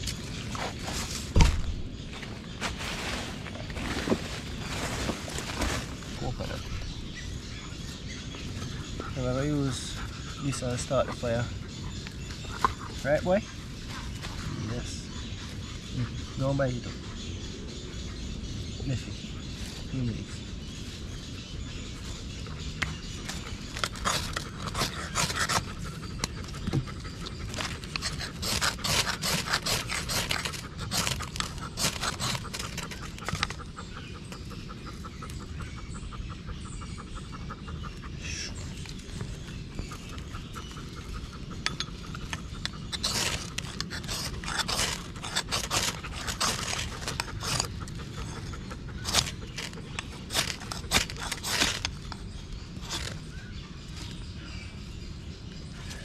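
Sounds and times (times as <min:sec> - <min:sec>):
dog panting: 0:23.3 - 0:52.0
knife scraping coconut husk: 0:23.6 - 0:25.8, 0:27.5 - 0:33.5, 0:41.7 - 0:47.8, 0:49.0 - 0:52.2, 0:52.8 - 0:53.2.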